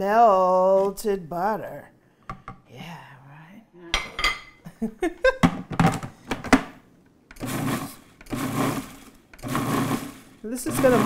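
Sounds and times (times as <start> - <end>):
food processor motor pulsing: 7.3 - 11.0.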